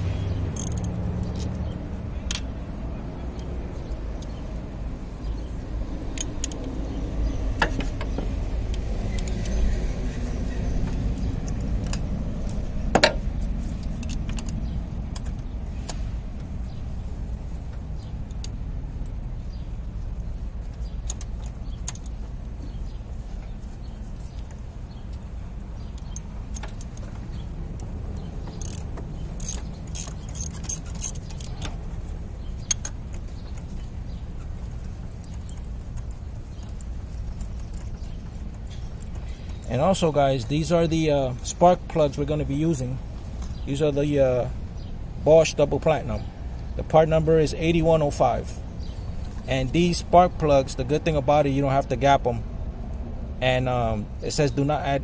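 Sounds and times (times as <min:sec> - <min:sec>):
steady low rumble: 0:00.0 - 0:54.2
ratchet clicking: 0:00.5 - 0:01.5, 0:25.9 - 0:40.0
hand tools clinking: 0:25.8 - 0:43.7.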